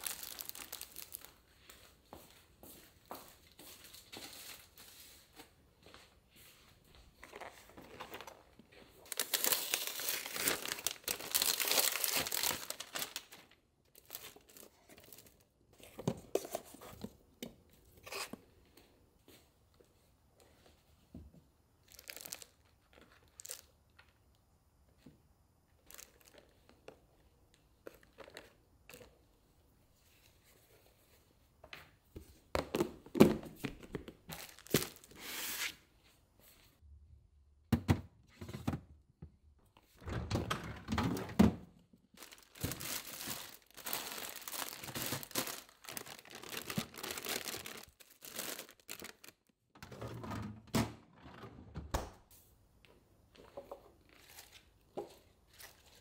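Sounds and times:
plastic packaging crinkling and tearing: 0:00.0 - 0:01.4, 0:07.3 - 0:15.5, 0:21.8 - 0:23.7, 0:34.3 - 0:35.6, 0:42.1 - 0:49.5.

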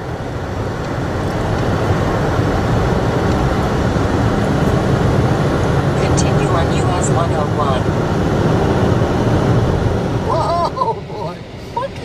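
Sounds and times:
car road noise rumble: 0:00.0 - 0:12.0.

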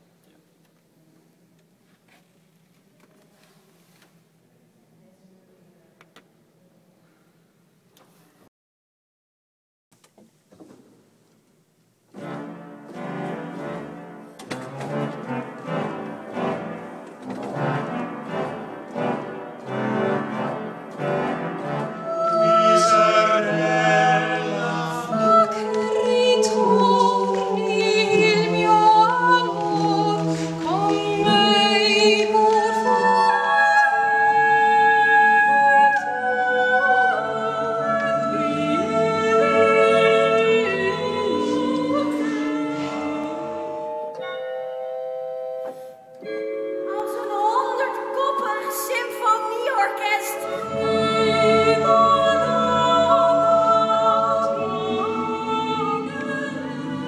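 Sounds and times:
mixed choir singing: 0:17.6 - 0:44.1, 0:47.0 - 0:57.0.

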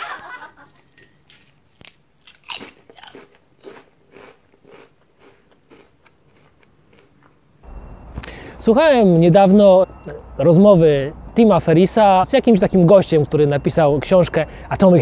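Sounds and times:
crisp crunching: 0:00.7 - 0:07.1.

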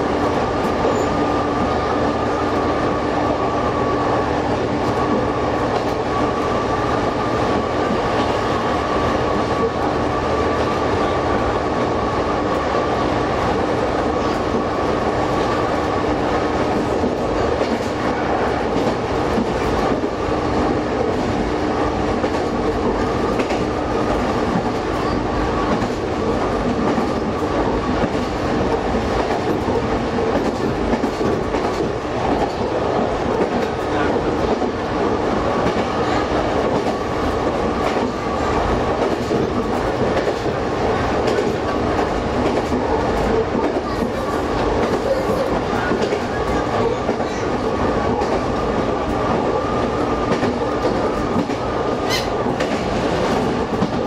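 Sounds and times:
railcar engine drone: 0:00.0 - 0:54.0
wheels clattering on rails: 0:14.2 - 0:54.0.

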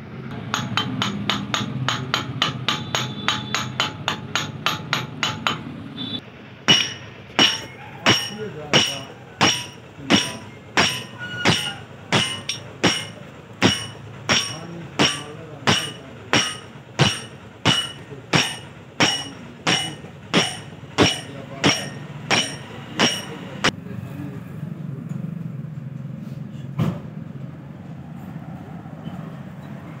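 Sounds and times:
steady low hum: 0:00.0 - 0:23.7
hammer striking metal rod: 0:00.3 - 0:23.7.

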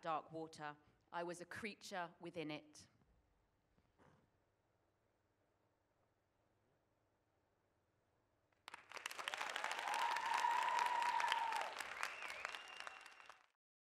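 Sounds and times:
audience applauding and cheering: 0:08.7 - 0:13.6
whoops or whistles: 0:09.8 - 0:13.4.

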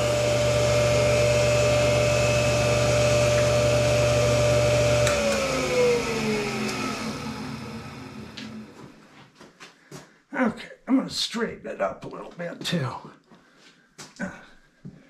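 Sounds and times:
grinder motor whining: 0:00.0 - 0:09.0.

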